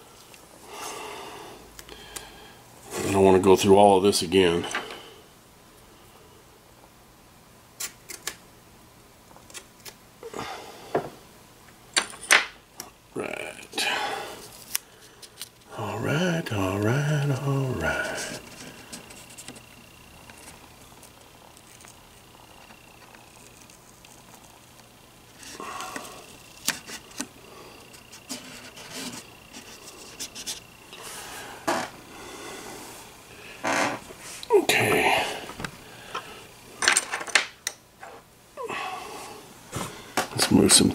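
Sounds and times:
tape rubbing and rustling: 9.3 - 10.0, 14.4 - 15.7, 17.2 - 25.6, 26.3 - 30.7.

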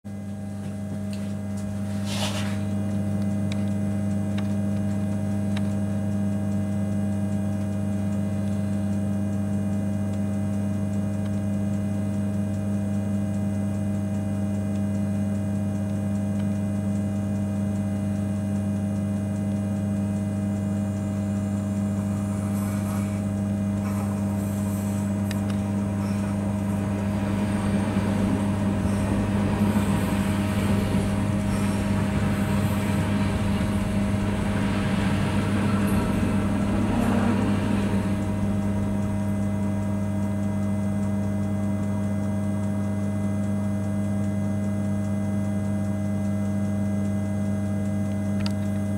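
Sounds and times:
low electric hum in train cab: 0.1 - 48.9
passing train rumble and hiss: 1.6 - 2.8, 21.9 - 40.5.

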